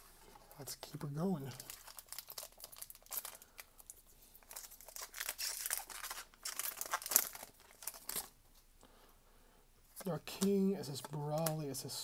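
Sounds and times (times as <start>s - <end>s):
foil pack crinkling and tearing: 1.2s - 8.4s.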